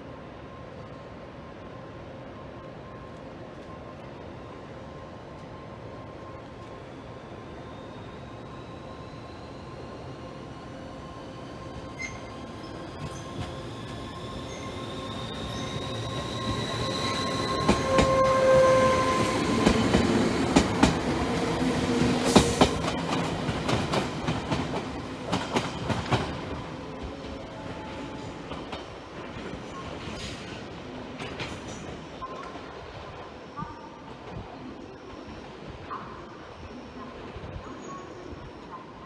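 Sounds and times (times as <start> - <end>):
train rumble: 2.3 - 37.7
high ringing tones: 7.1 - 19.5
train wheels clicking over rail joints: 22.0 - 26.5.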